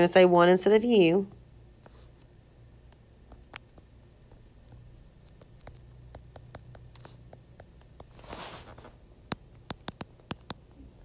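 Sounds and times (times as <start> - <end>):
stylus tapping on glass screen: 3.3 - 8.2, 9.3 - 10.7.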